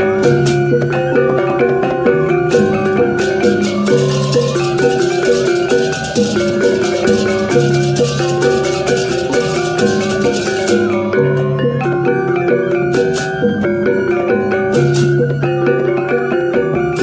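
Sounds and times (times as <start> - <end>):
gongs ringing in fast pattern: 0.0 - 17.0
hand cymbals clashing: 2.5 - 11.2.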